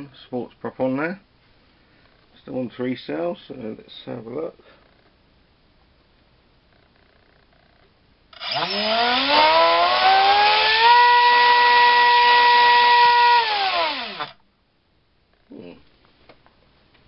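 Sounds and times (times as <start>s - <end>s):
electric motor whine: 8.4s - 14.4s.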